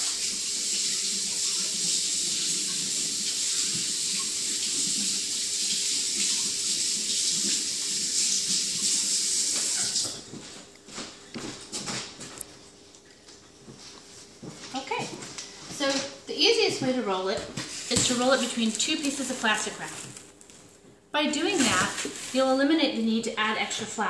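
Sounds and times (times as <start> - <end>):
tap water running into sink: 0.0 - 10.2.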